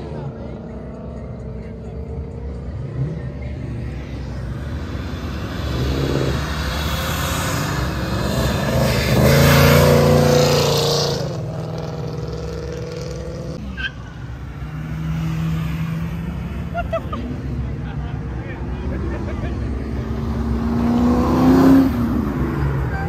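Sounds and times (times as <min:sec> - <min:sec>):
quiet steady engine hum: 0:00.0 - 0:06.3.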